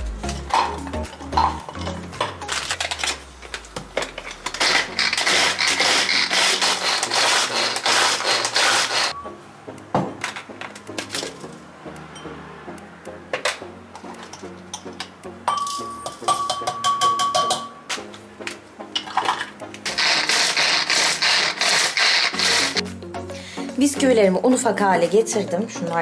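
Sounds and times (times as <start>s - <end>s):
food processor grinding biscuits: 4.4s - 9.1s, 19.9s - 22.8s.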